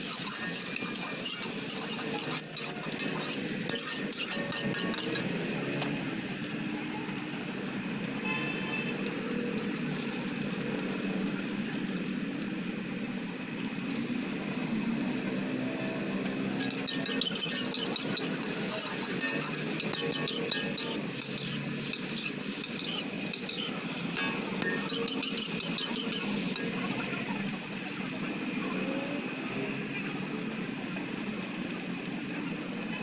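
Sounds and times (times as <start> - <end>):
metal spatula scraping wok: 0.0 - 5.7, 16.4 - 27.7
sizzling: 0.0 - 33.0.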